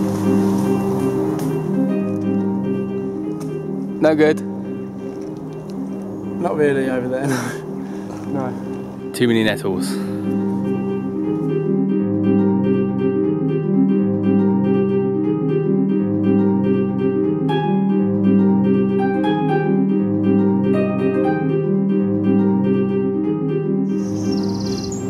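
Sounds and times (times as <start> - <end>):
low bass line: 0.0 - 24.4
plucked harp notes: 16.2 - 22.6.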